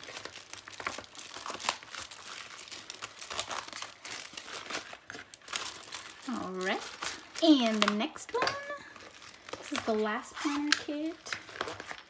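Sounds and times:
paper and plastic rustling: 0.0 - 12.0.

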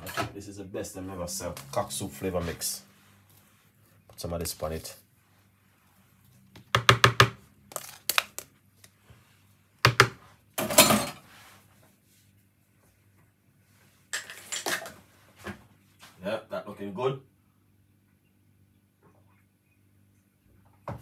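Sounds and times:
packets and containers tapping: 6.6 - 8.5, 9.8 - 10.2.

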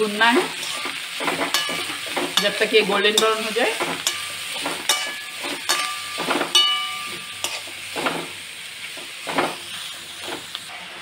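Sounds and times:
onions sizzling in oil: 0.0 - 11.0
wooden spatula scraping metal pan: 0.2 - 8.4
metal pan ringing: 1.5 - 7.7.

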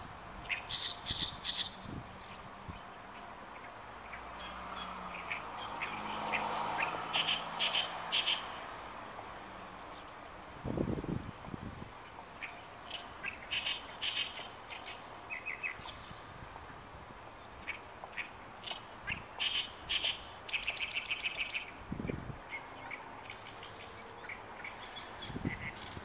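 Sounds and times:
reed warbler singing: 0.0 - 26.0.

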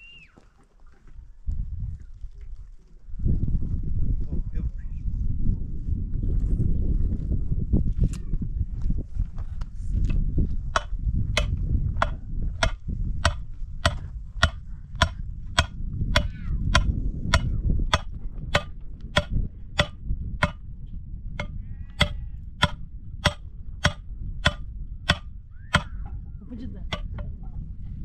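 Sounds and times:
low steady rumble: 9.6 - 28.0
hammer striking metal stake: 10.8 - 20.6, 21.4 - 26.0, 26.9 - 27.3.

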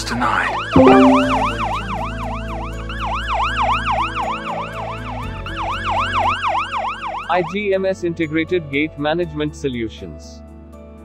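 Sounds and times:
low sustained music chord: 0.8 - 2.3.

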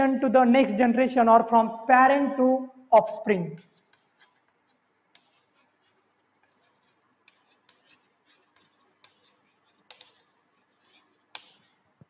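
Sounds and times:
chalk scratching on blackboard: 3.6 - 11.8.

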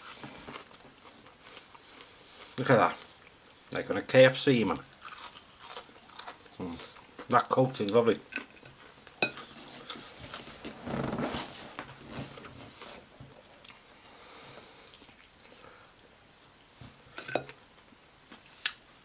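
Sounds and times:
person chewing crunchy food: 0.0 - 3.4, 4.9 - 7.4, 8.4 - 10.5, 12.4 - 15.6.

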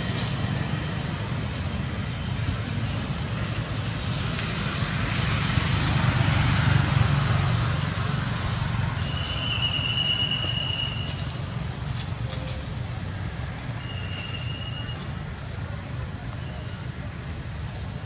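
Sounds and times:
steady high hiss: 0.0 - 18.0
thin high held tone: 8.9 - 11.5, 13.6 - 15.2.

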